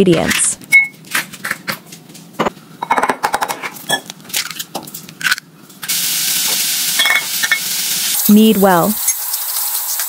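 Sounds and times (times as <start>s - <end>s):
utensils clinking on ceramic bowl: 2.4s - 4.6s, 7.0s - 7.7s.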